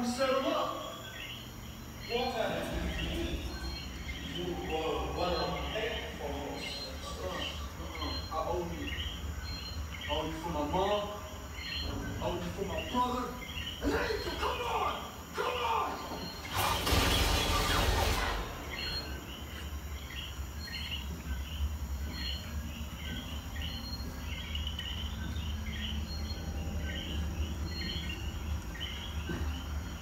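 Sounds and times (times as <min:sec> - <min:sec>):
high chirping calls: 0:00.0 - 0:30.0
low steady hum: 0:00.0 - 0:30.0
burst of rushing noise: 0:16.5 - 0:19.2.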